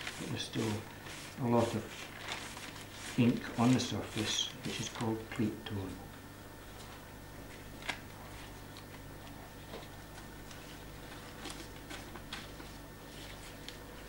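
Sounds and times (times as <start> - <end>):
cloth wiping metal plate: 0.0 - 5.0.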